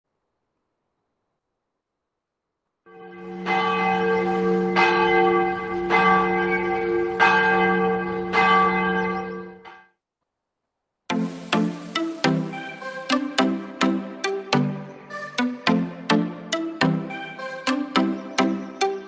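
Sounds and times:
church bell tolling: 2.9 - 9.8.

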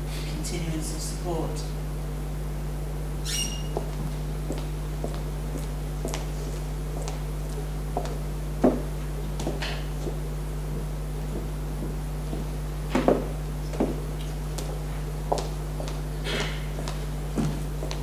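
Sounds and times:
low electrical hum: 0.0 - 18.0
people moving knocks and rustles: 11.3 - 14.8, 15.8 - 18.0.

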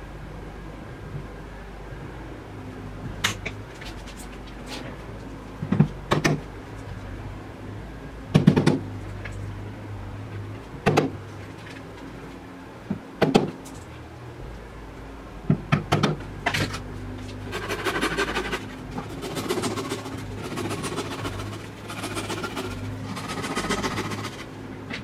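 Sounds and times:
steady rasping rattle: 17.4 - 24.5.

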